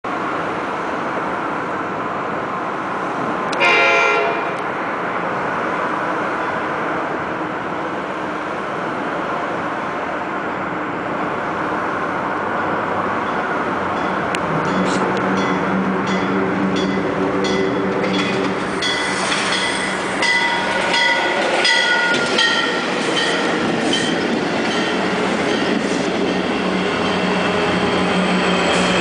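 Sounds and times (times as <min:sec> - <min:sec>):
train air horn blast: 0:03.6 - 0:04.6.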